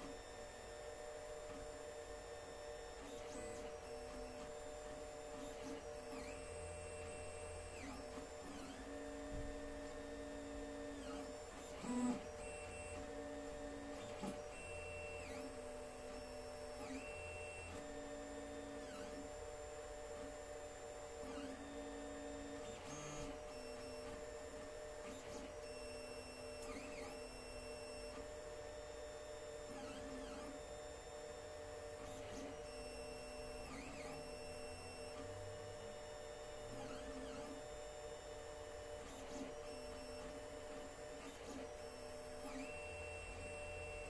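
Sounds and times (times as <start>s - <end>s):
steady printer hum: 0.0s - 44.0s.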